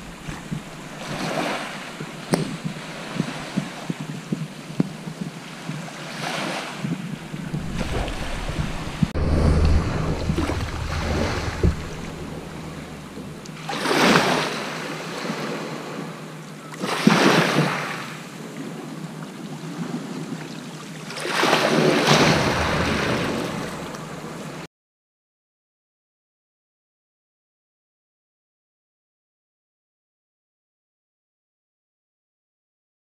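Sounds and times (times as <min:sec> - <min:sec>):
waves washing up shingle beach: 0:00.0 - 0:04.2, 0:05.4 - 0:16.1, 0:16.8 - 0:18.2, 0:20.9 - 0:24.7
wind buffeting microphone: 0:00.0 - 0:15.9, 0:21.7 - 0:24.6.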